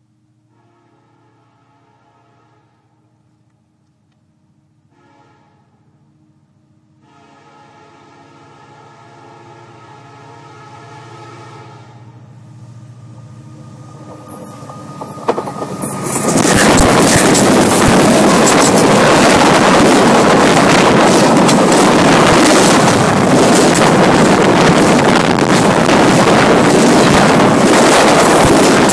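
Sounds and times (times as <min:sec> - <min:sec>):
train wheels rushing overhead: 0:12.1 - 0:28.9
sharp train clacks: 0:12.2 - 0:28.9.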